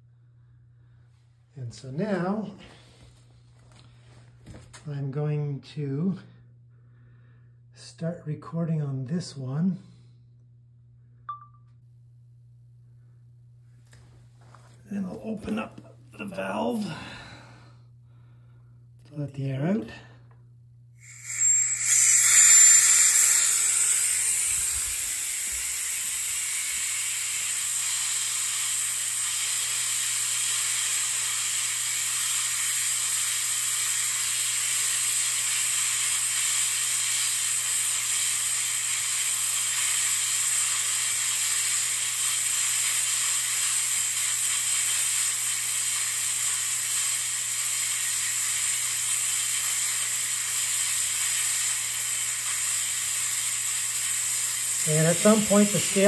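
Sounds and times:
compressed air hissing from valve: 21.0 - 56.0.

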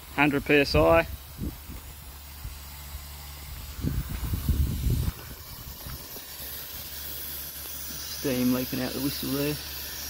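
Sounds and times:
steam hissing: 0.0 - 10.0
low rumble: 1.1 - 7.1.

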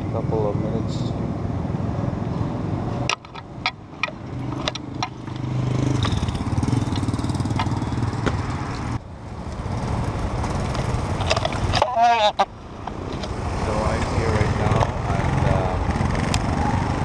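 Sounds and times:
sharp clicks and knocks: 3.0 - 8.9, 10.4 - 13.4
motorcycle engine running: 4.0 - 8.8.

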